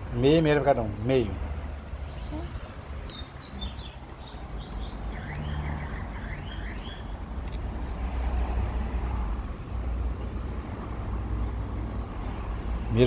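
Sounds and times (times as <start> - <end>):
motor vehicle rumbling: 0.0 - 13.0
small birds chirping: 2.0 - 7.2.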